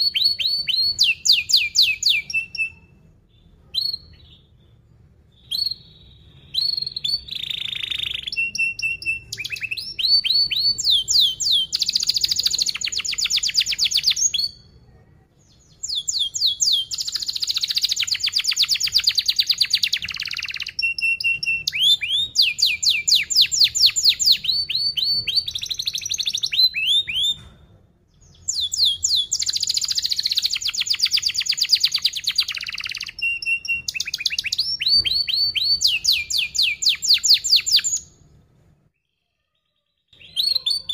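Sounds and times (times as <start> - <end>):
canary singing trills: 0.0 - 14.8, 15.4 - 27.5, 28.1 - 38.3, 39.0 - 40.9.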